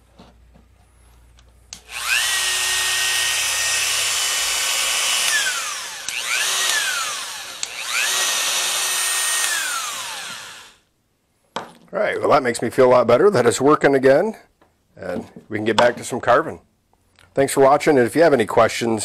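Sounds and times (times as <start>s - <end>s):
rotary tool whining: 1.8s - 10.8s.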